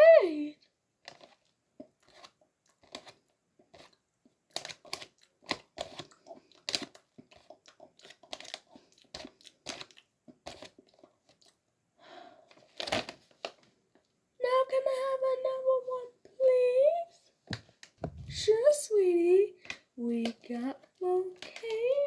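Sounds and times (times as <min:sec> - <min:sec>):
plastic bag crinkling: 0:01.0 - 0:03.9, 0:04.5 - 0:11.5, 0:12.5 - 0:14.0, 0:17.7 - 0:18.8, 0:19.5 - 0:22.0
chips crunching: 0:01.0 - 0:11.6.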